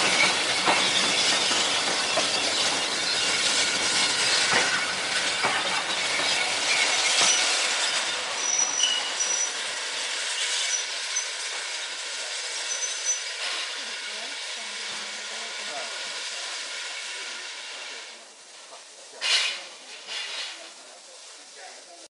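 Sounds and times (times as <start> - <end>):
high wheel squeals: 0.0 - 14.4
wheels clicking over rail joints: 0.0 - 17.1
train coaches rumbling past: 0.0 - 22.0.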